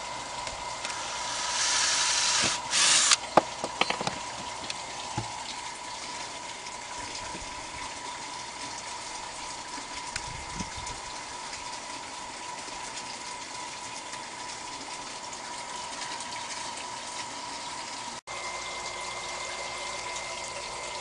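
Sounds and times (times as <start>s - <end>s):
water running: 0.0s - 21.0s.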